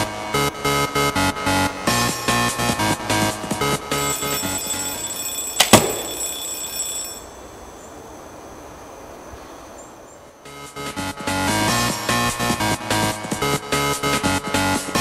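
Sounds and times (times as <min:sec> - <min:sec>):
alarm clock ringing: 0:00.9 - 0:08.0.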